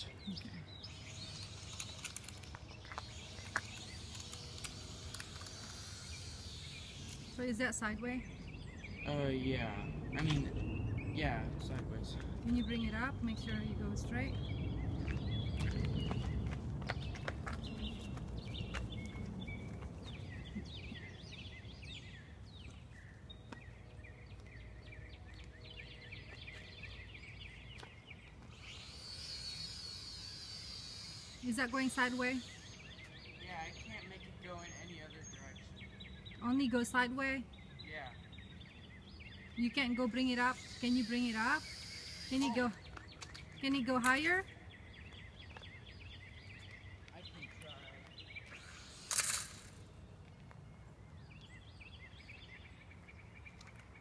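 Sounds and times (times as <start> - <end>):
songbirds chirping: 0.0 - 54.0
drone motor whine: 0.8 - 8.6, 28.5 - 33.2, 40.2 - 42.9, 48.4 - 49.8
low rumble: 7.0 - 21.8.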